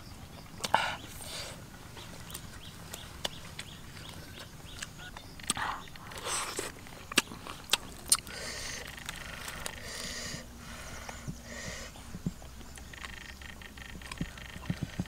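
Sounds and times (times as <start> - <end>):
forest ambience: 0.0 - 15.0
eggs being peeled and chewed: 2.0 - 15.0.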